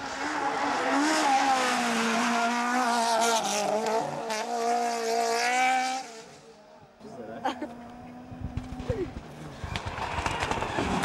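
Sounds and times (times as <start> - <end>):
rally car engine at high revs: 0.0 - 6.6.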